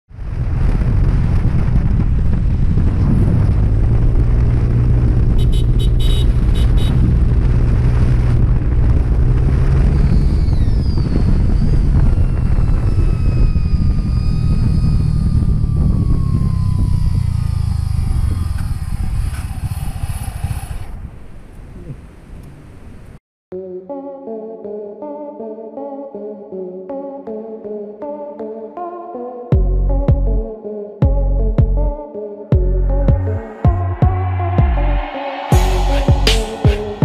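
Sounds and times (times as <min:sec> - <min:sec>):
wind noise: 0:00.1 - 0:23.2, 0:32.6 - 0:37.0
whine falling in pitch: 0:02.8 - 0:19.6, 0:32.6 - 0:37.0
scooter engine running: 0:05.3 - 0:07.4, 0:13.5 - 0:20.8.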